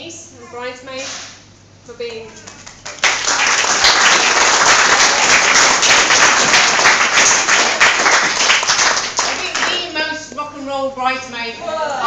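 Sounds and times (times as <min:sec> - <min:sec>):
crowd applauding: 0:02.6 - 0:09.8.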